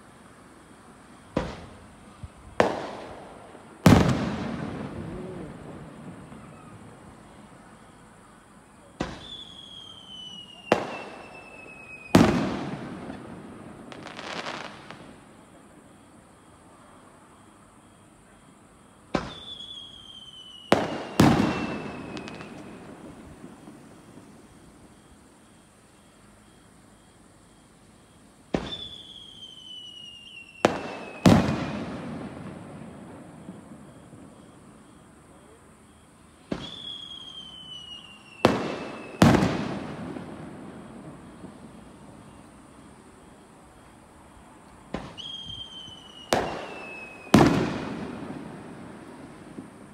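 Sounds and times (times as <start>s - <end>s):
firework crackling: 0.0s - 16.1s, 19.0s - 25.9s, 28.4s - 35.5s, 36.3s - 49.9s
falling firework whistle: 0.6s - 18.4s, 19.0s - 27.2s, 28.0s - 49.9s
firework bangs: 0.8s - 16.1s, 19.0s - 25.6s, 28.5s - 35.5s, 36.4s - 49.9s
firework whistle falling in pitch: 9.0s - 12.8s, 19.2s - 23.1s, 28.6s - 32.0s, 36.6s - 39.8s, 45.0s - 48.4s.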